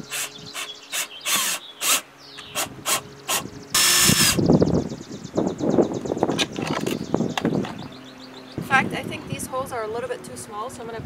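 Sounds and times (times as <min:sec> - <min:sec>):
cordless drill boring plastic: 0:00.0 - 0:04.4
drill ratcheting clicks: 0:00.0 - 0:04.4.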